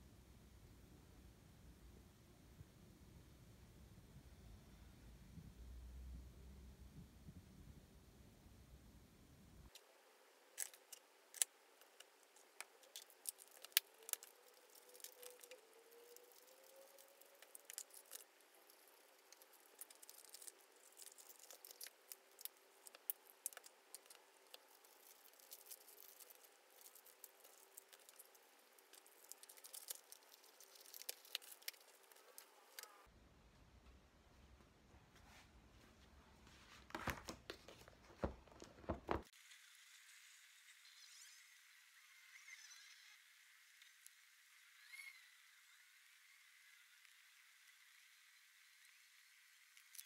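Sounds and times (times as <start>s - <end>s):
paper rustling: 36.4s - 39.3s.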